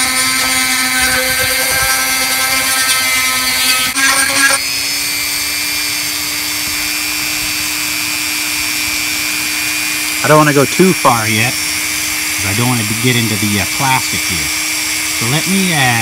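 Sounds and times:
bit grinding plastic: 0.0 - 4.6
rotary tool whining: 0.0 - 16.0.

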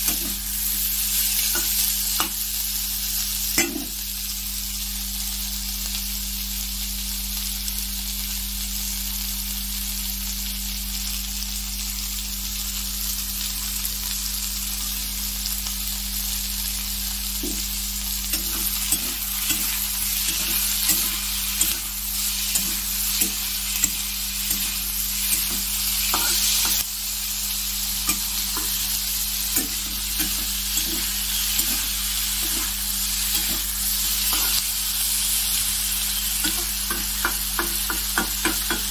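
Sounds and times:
vegetables sizzling in hot oil: 0.0 - 38.9.

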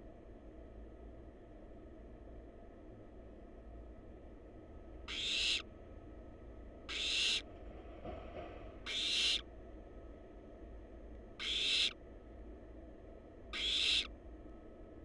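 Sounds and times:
owl chicks hissing: 5.1 - 5.7, 6.9 - 7.5, 8.8 - 9.5, 11.4 - 12.0, 13.5 - 14.1.

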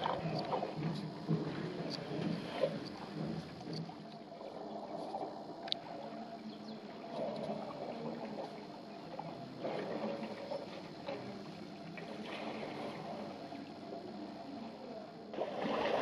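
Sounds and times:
elephants sloshing water: 0.0 - 6.2, 9.2 - 13.6, 15.3 - 16.0.

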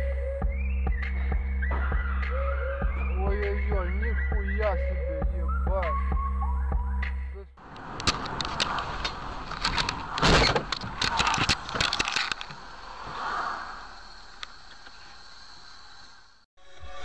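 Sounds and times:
car cabin and road noise: 6.7 - 13.2
sharp clicks and knocks: 7.7 - 12.6.

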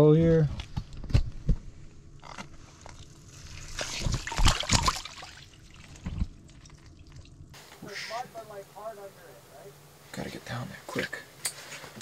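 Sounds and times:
water splashing and sloshing: 2.8 - 7.6.

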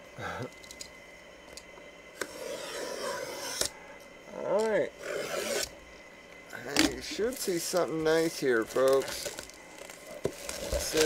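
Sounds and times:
blade scraping through cardboard: 2.2 - 3.7, 5.0 - 5.7.

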